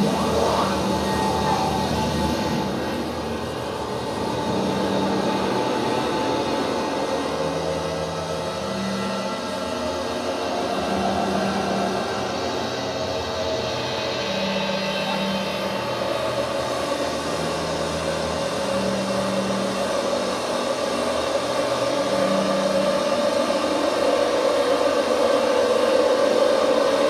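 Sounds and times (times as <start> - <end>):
high ringing tone: 0.0 - 2.9.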